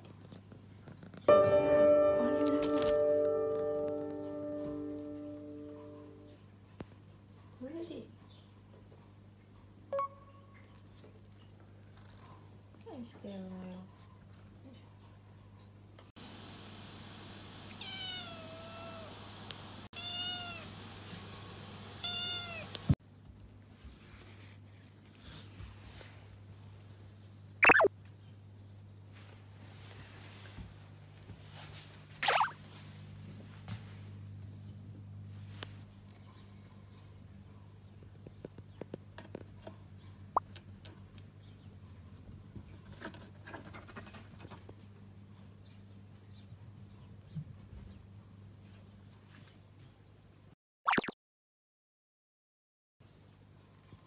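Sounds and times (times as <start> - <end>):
kitten meowing: 17.8 - 19.1, 20.0 - 20.7, 22.0 - 22.7.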